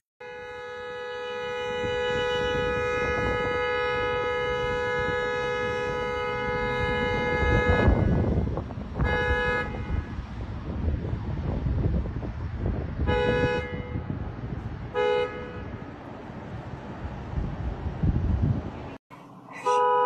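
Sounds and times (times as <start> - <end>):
truck horn honking: 0.2 - 10.2, 13.0 - 14.2, 14.9 - 15.9, 19.6 - 20.0.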